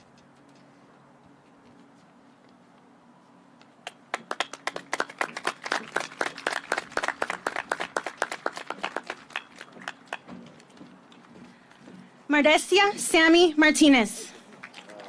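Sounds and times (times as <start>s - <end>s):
people clapping: 3.8s - 10.8s, 14.4s - 15.0s.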